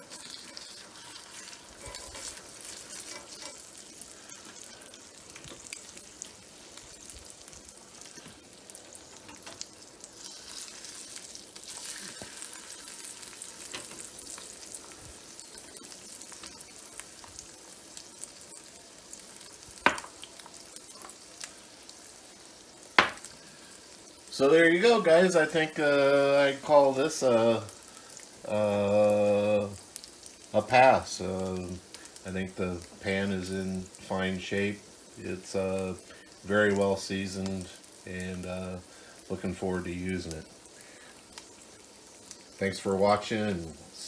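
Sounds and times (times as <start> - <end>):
egg sizzling in grease: 0.0 - 44.0
spatulas scraping: 0.1 - 3.7.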